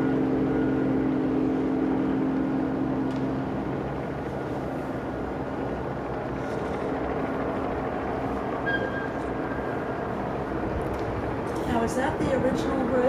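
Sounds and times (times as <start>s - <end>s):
distant boat engines rumbling: 0.0s - 13.0s
brief high tone: 8.6s - 9.2s.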